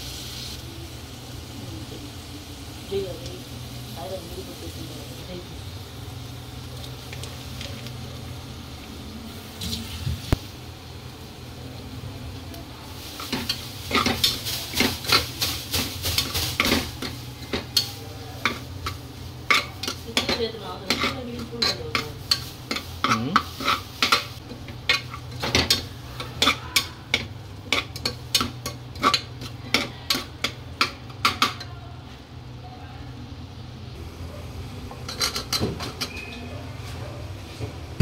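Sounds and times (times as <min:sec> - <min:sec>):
food sizzling: 0:00.0 - 0:32.6
metal spoon scraping a pot: 0:13.2 - 0:15.3, 0:16.2 - 0:31.7, 0:35.1 - 0:36.3.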